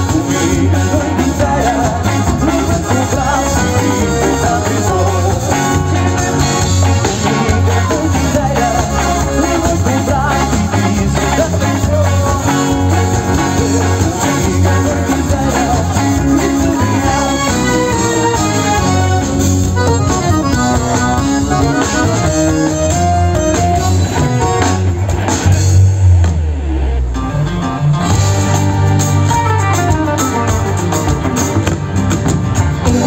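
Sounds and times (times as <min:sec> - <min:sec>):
live rock band playing: 0:00.0 - 0:33.0
loud low bass swell: 0:23.9 - 0:29.3.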